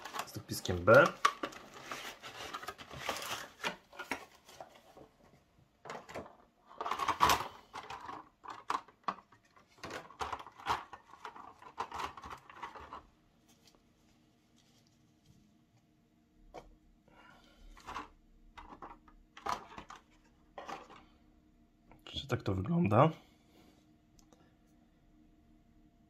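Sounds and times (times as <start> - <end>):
plastic packaging clicks and rustles: 0.0 - 13.9, 17.7 - 21.0.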